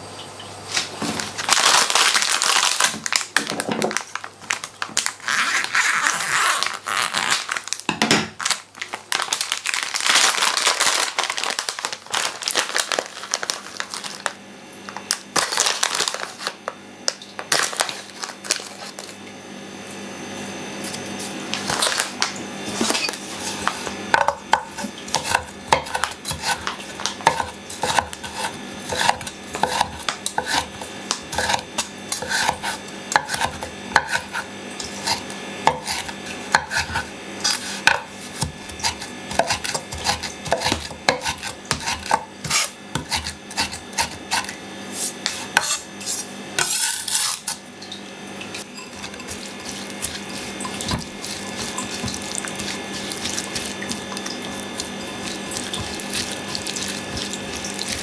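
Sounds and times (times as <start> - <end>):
plastic bag crinkling: 1.2 - 16.7, 17.4 - 19.2, 21.5 - 23.8, 48.6 - 58.0
knife chopping on cutting board: 24.2 - 47.6, 48.8 - 58.0.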